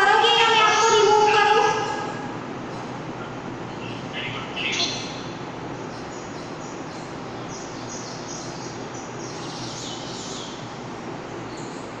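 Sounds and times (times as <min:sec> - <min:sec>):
birds chirping: 0:00.0 - 0:12.0
steady background hiss: 0:00.0 - 0:12.0.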